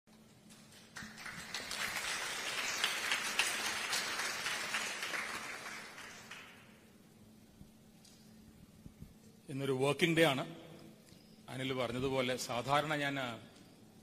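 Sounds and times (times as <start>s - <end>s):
faint steady hum: 0.1s - 14.0s
audience applauding: 0.5s - 6.9s.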